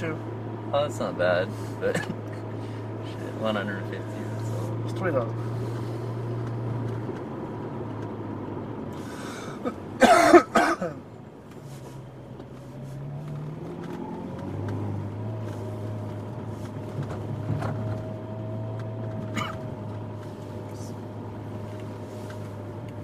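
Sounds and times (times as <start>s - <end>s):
car engine running: 0.0s - 23.0s
engine cough: 1.5s - 2.9s, 9.0s - 11.1s, 19.2s - 19.9s.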